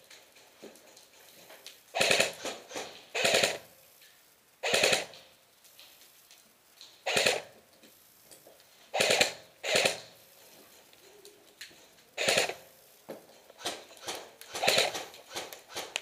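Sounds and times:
airsoft rifle automatic bursts: 1.9s - 3.6s, 4.6s - 5.2s, 7.0s - 7.6s, 8.9s - 10.2s, 12.2s - 12.7s, 13.6s - 16.0s.

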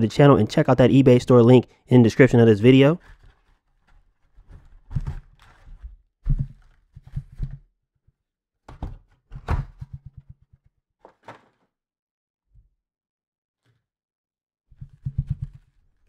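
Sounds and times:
cardboard box knocking on table: 6.3s - 7.6s.

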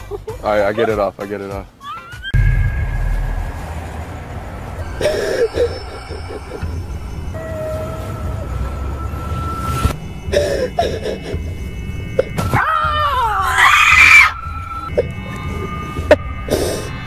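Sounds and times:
eerie background music: 1.9s - 17.0s
person screaming in fright: 12.6s - 14.4s.

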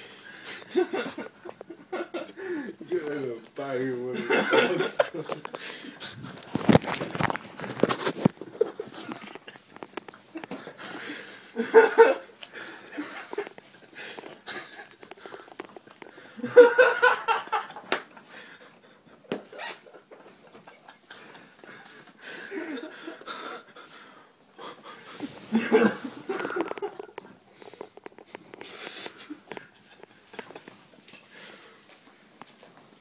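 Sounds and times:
stifled laughter: 0.5s - 2.6s, 8.3s - 9.7s, 10.3s - 24.0s, 24.6s - 27.3s
rustling and clicks: 5.2s - 10.7s, 26.2s - 31.3s.

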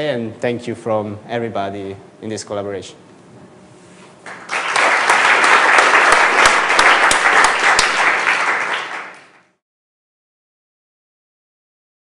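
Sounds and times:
audience applauding: 4.2s - 9.6s.

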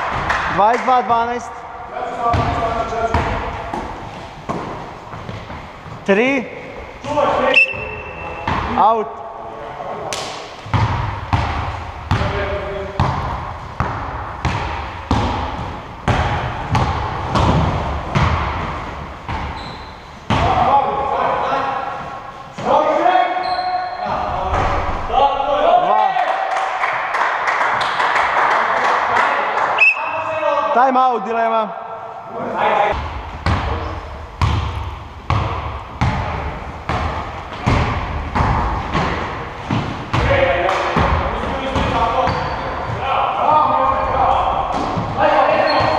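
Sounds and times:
basketball bouncing on gym floor: 2.2s - 5.6s, 7.7s - 8.8s, 10.3s - 19.6s, 33.0s - 43.0s.

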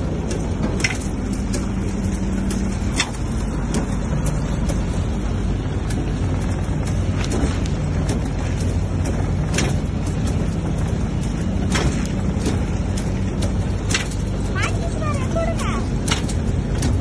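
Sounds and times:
light mechanical clicks: 0.0s - 17.0s
machinery humming: 0.0s - 17.0s.

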